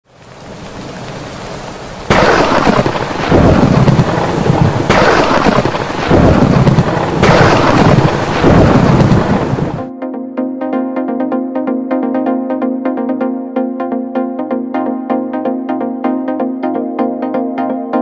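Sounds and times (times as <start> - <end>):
rain hiss: 0.1 - 9.9
thunder rumbling: 2.1 - 9.9.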